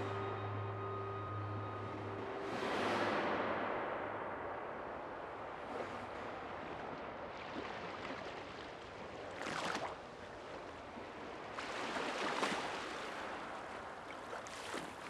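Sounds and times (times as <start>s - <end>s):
rushing water: 0.0s - 15.0s.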